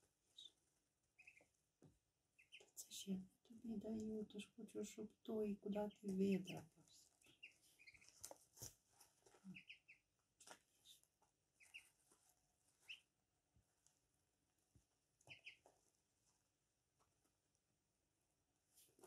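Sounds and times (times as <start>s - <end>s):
ducklings peeping: 0.3s - 1.6s, 2.3s - 3.1s, 3.7s - 12.1s, 12.7s - 13.2s, 15.2s - 15.8s.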